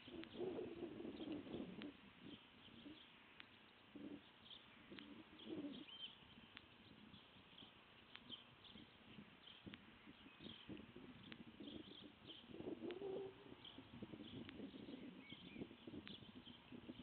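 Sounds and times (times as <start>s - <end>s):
dove cooing: 0.0s - 3.0s, 3.9s - 6.1s, 10.2s - 17.0s
small high bird chirps: 0.0s - 17.0s
faint ticking: 7.7s - 8.7s.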